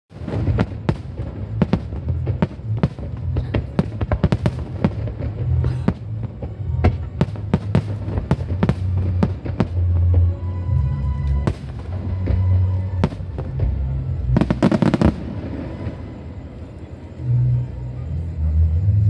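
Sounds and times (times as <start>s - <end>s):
fireworks bangs: 0.1s - 16.9s
low rumble: 0.1s - 19.0s.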